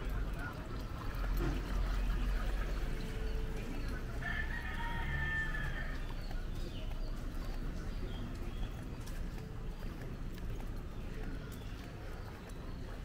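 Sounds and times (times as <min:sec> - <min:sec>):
rooster crowing: 0:04.2 - 0:06.0.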